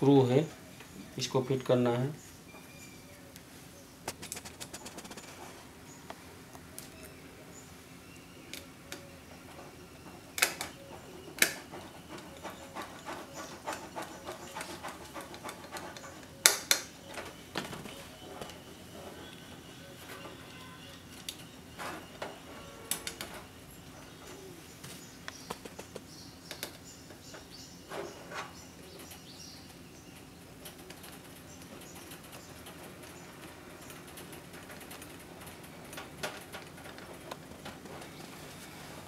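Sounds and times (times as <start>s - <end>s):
hands handling wiring: 8.5s - 23.6s.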